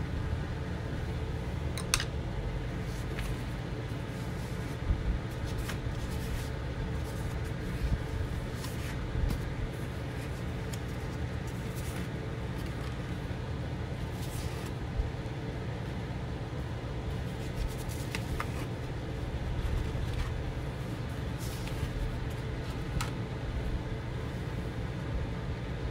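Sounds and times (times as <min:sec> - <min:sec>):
steady low hum: 0:00.0 - 0:25.9
paper cards rustling and tapping: 0:02.8 - 0:13.3, 0:17.1 - 0:23.3.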